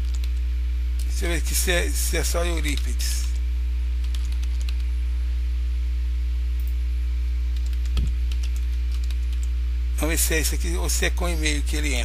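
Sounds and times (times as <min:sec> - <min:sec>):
keyboard typing clicks: 0:00.0 - 0:00.4, 0:04.0 - 0:04.9, 0:07.6 - 0:09.5
low electrical hum: 0:00.0 - 0:12.0.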